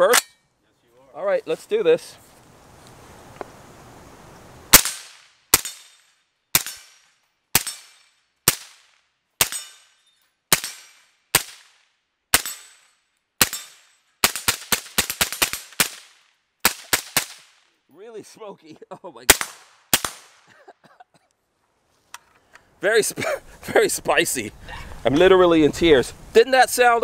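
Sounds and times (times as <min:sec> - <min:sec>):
suppressed rifle shots: 0:04.7 - 0:09.8.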